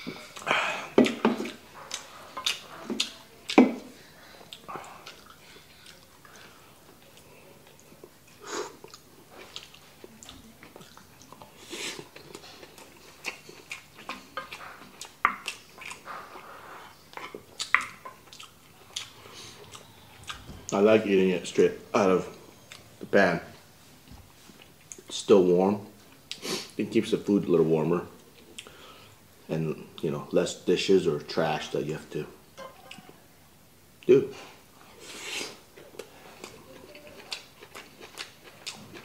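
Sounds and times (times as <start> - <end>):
mouth chewing sounds: 0.0 - 23.6, 24.4 - 25.1, 34.0 - 39.0.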